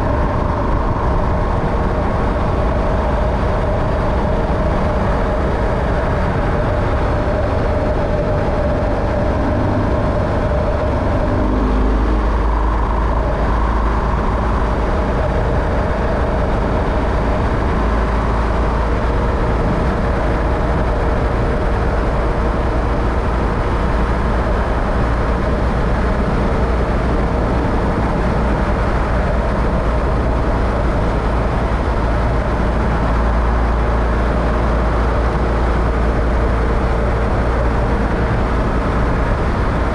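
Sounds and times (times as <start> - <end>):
vehicle engine and road rumble: 0.0 - 39.9.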